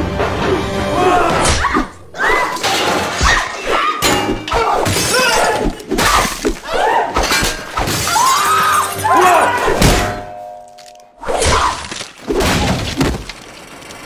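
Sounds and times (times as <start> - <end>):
music: 0.0 - 4.8, 8.0 - 10.3
objects crashing and smashing: 2.5 - 13.8
shouted yells: 3.2 - 7.2, 8.1 - 9.8.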